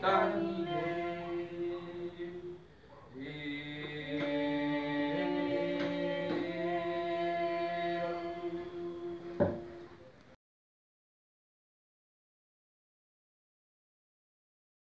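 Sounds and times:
voices chanting long notes: 0.0s - 2.6s, 3.2s - 10.0s.

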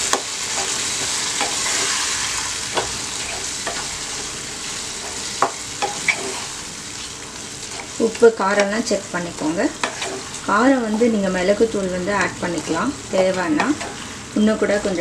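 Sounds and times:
meat sizzling in a pan: 0.0s - 15.0s.

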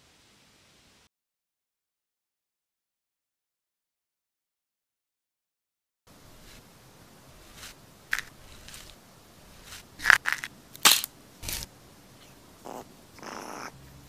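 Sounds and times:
eggshell cracking: 10.0s - 11.7s.

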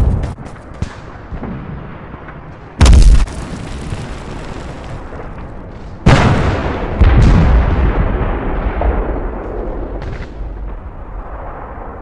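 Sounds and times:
explosion blast: 2.8s - 5.4s, 6.0s - 12.0s.

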